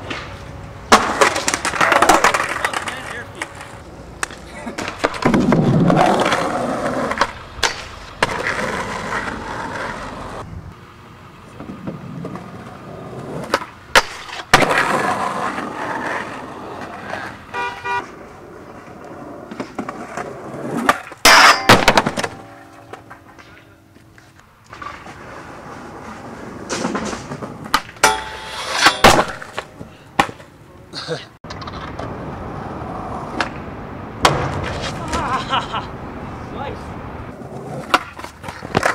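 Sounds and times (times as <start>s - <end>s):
skateboard clacks: 0.0s - 10.4s, 11.6s - 30.5s, 37.5s - 38.9s
skateboard wheels rolling on concrete: 0.0s - 38.9s
board grinding on metal rail: 19.5s - 23.6s, 24.7s - 29.7s.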